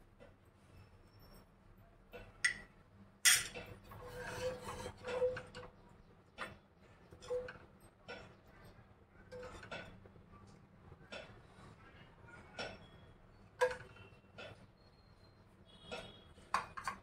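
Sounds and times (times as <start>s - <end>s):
sharp clanks with ringing tone: 2.4s - 3.7s
spoon and dishes clinking: 2.4s - 3.8s.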